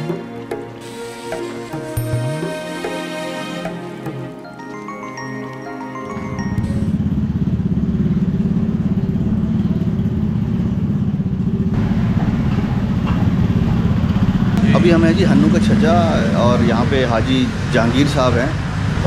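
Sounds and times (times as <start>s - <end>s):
background music with mallet notes: 0.0s - 7.0s
street noise: 0.0s - 19.0s
motorcycle engine running: 6.7s - 16.8s.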